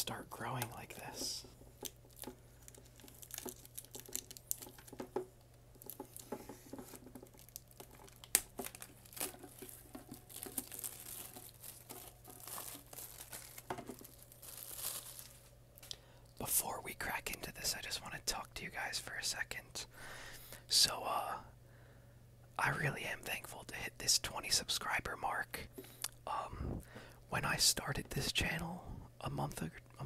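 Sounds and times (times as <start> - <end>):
plastic shrink-wrap crinkling: 1.7 - 15.5.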